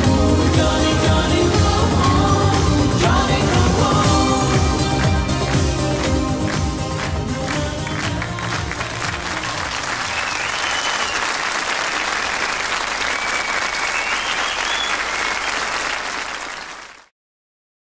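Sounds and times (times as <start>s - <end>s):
audience applauding: 5.0s - 17.1s.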